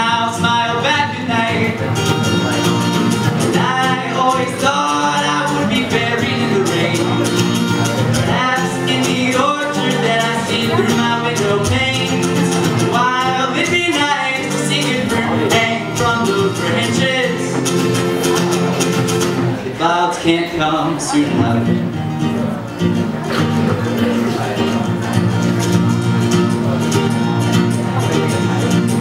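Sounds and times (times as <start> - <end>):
man singing: 0.0 - 22.8
strummed acoustic guitar: 0.0 - 29.0.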